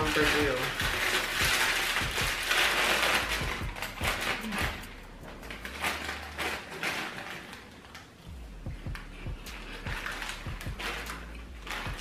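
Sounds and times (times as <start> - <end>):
plastic snack bag crinkling: 0.0 - 8.3, 9.0 - 12.0.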